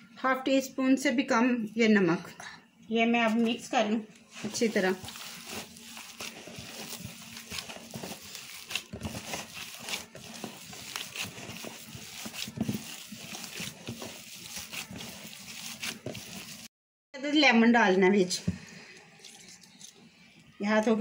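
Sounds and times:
squishing of kneaded meat: 4.3s - 16.7s.

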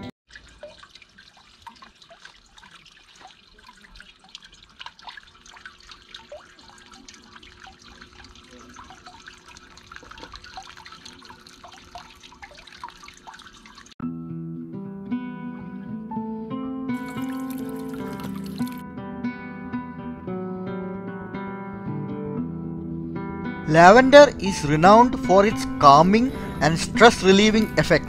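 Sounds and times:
water trickling and dripping: 0.3s - 14.0s, 17.0s - 18.8s.

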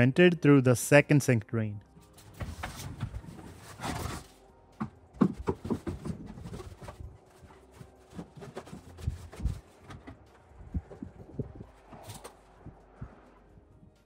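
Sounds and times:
plastic pipe knocking against wood: 4.8s - 6.9s.

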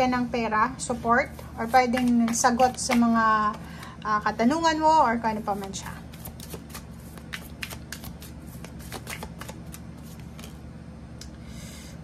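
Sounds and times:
cards being shuffled: 1.3s - 3.9s, 5.5s - 10.6s.

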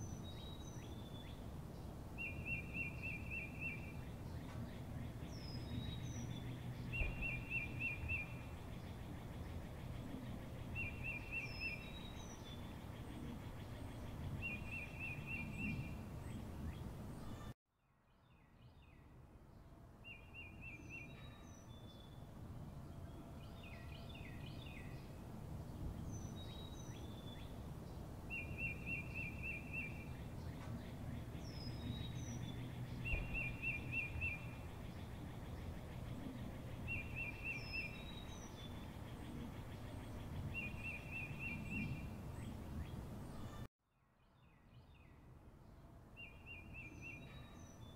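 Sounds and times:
low steady background noise: 0.0s - 47.9s
high bird chirps: 28.3s - 35.8s.

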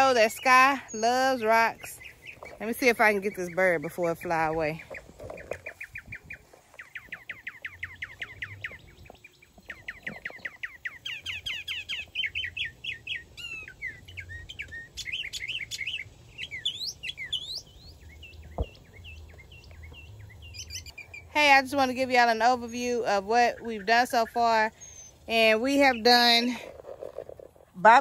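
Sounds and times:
birds chirping and whistling: 0.0s - 28.0s.

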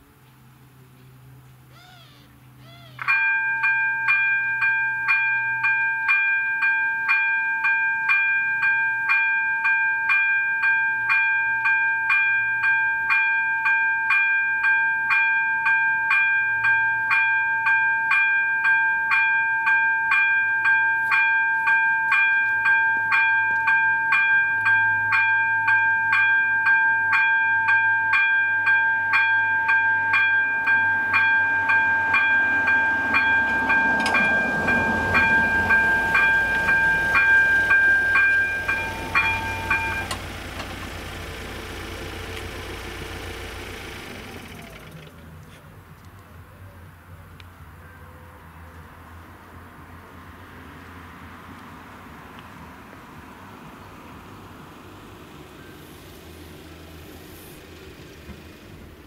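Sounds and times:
level crossing warning bell: 3.0s - 45.0s.

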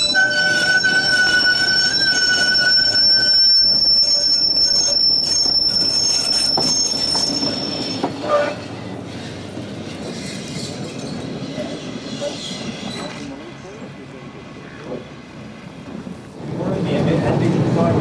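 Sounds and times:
tram wheels squealing on rails: 0.0s - 16.0s
tram rumbling: 0.0s - 18.0s.

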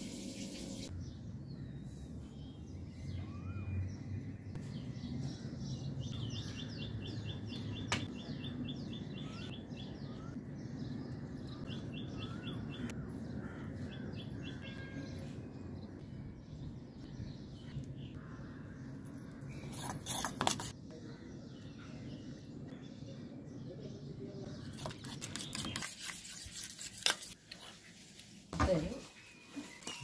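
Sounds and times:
birds chirping: 0.1s - 26.6s.

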